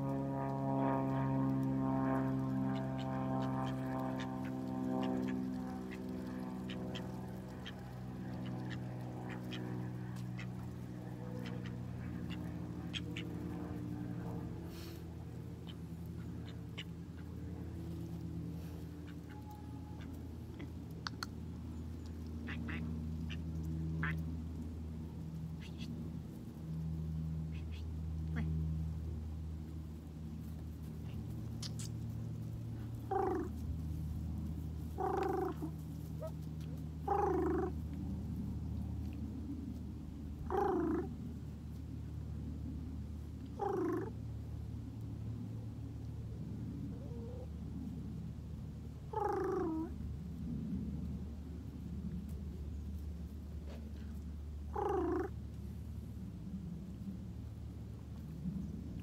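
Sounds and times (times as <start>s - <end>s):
ducks pecking: 0.0s - 25.9s, 30.3s - 38.1s
steady low hum: 0.0s - 59.0s
ducks quacking softly: 2.2s - 15.0s, 22.4s - 24.2s, 35.0s - 36.3s
duck rattling call: 22.5s - 22.8s.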